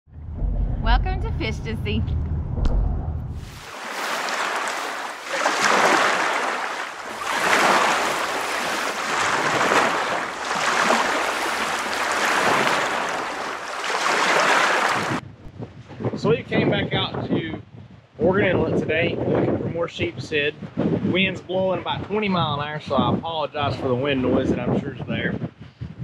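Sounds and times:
ocean waves washing in: 0:03.4 - 0:15.2.

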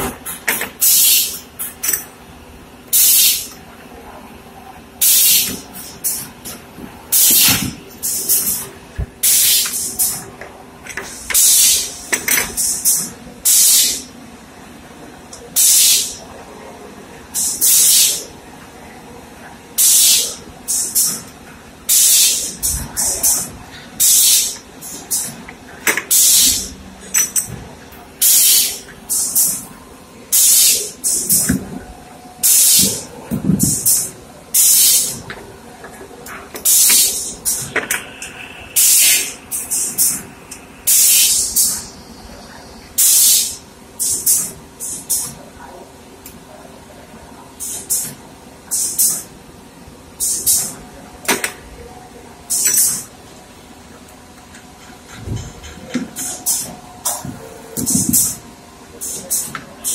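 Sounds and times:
air hissing from machine: 0:00.8 - 0:01.7, 0:02.9 - 0:03.5, 0:05.0 - 0:06.3, 0:07.1 - 0:10.2, 0:11.0 - 0:14.1, 0:15.6 - 0:16.2, 0:17.4 - 0:18.3, 0:19.8 - 0:21.3, 0:21.9 - 0:25.4, 0:26.0 - 0:27.5, 0:28.2 - 0:29.7, 0:30.3 - 0:31.5, 0:32.4 - 0:35.2, 0:36.6 - 0:45.4, 0:47.6 - 0:49.3, 0:50.2 - 0:50.8, 0:56.2 - 0:58.4, 0:59.0 - 0:59.9.

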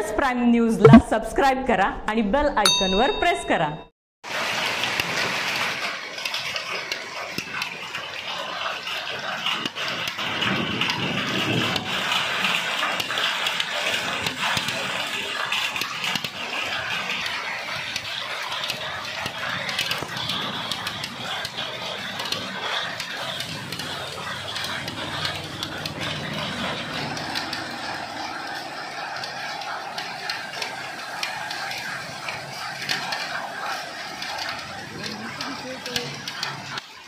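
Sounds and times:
hailstones clicking: 0:04.3 - 0:36.9
heavy rain hissing: 0:19.8 - 0:36.8.

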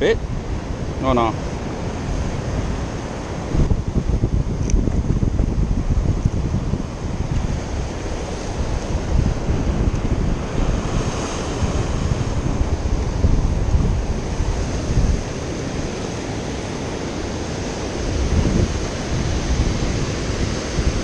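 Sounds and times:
ocean surf: 0:00.0 - 0:21.0
wind gusting across microphone: 0:00.0 - 0:21.0.

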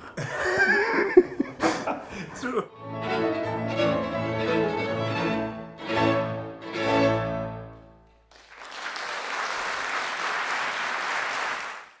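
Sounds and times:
classical string music: 0:02.7 - 0:08.2
audience applause: 0:08.3 - 0:12.0.

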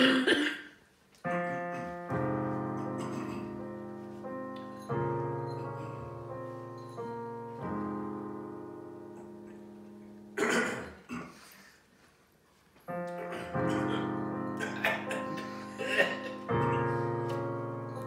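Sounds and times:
digital piano chords: 0:01.2 - 0:11.2, 0:12.9 - 0:18.0.

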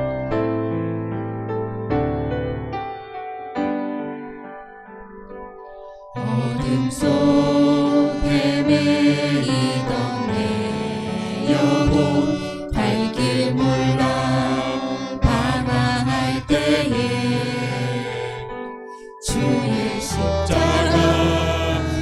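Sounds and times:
keyboard: 0:00.0 - 0:22.0
man and woman singing: 0:06.2 - 0:18.5, 0:19.2 - 0:22.0
violin: 0:06.2 - 0:18.5, 0:19.2 - 0:22.0.

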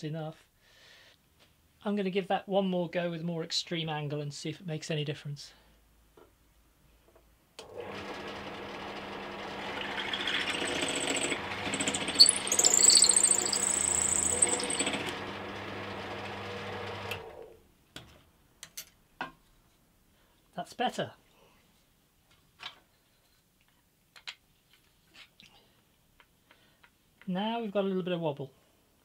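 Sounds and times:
drill press motor running: 0:07.6 - 0:17.5
drill bit cutting wood: 0:07.9 - 0:17.2.

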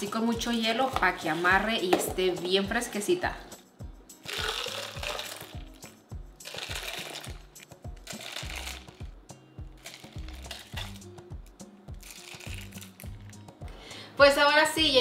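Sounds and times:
background music with steady beat: 0:00.0 - 0:15.0
ice clinking: 0:04.2 - 0:05.8, 0:06.4 - 0:09.0, 0:09.8 - 0:11.1, 0:12.0 - 0:13.3
liquid pouring and splashing: 0:04.3 - 0:05.8, 0:06.4 - 0:09.0, 0:12.0 - 0:13.2.

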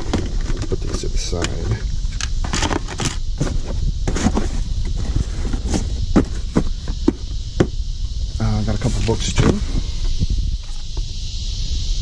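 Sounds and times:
boxes knocking and scraping: 0:00.0 - 0:01.8, 0:02.4 - 0:07.8
high hiss: 0:00.0 - 0:12.0.

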